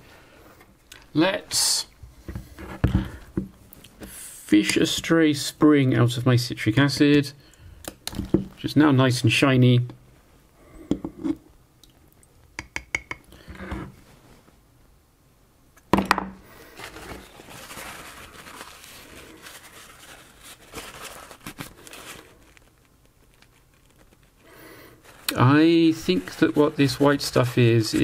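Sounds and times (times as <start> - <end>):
paper towel rustling: 16.5 - 28.0.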